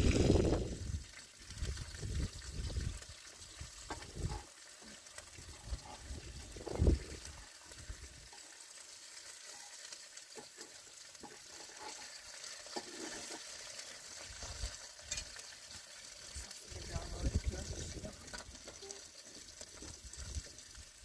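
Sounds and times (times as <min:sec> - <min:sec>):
food sizzling in a pan: 0:00.0 - 0:21.0
spatula scraping a pan: 0:03.6 - 0:16.4, 0:18.0 - 0:20.5.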